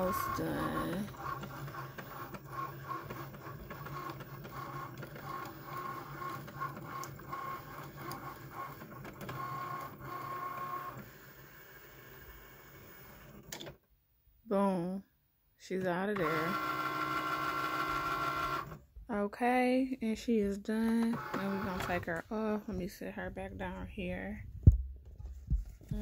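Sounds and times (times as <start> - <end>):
cutting machine motors whirring: 0.0 - 13.6, 15.8 - 18.8, 20.9 - 22.2.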